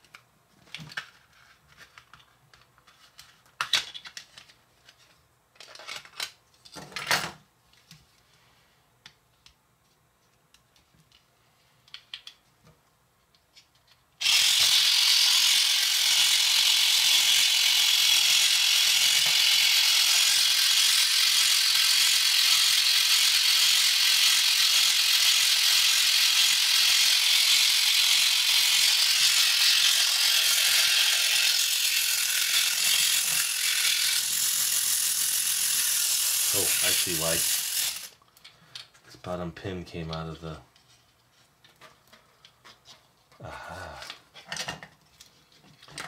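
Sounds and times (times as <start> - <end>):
toy motor ratcheting whir: 14.2 - 38.2.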